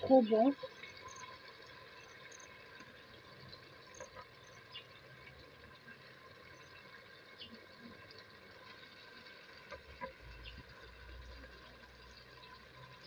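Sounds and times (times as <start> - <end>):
small ticks and pops: 0.5 - 5.4.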